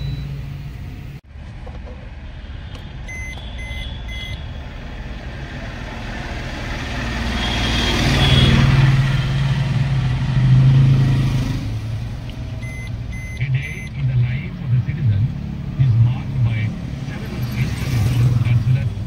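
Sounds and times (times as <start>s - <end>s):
vehicle engine hum: 0.0s - 19.0s.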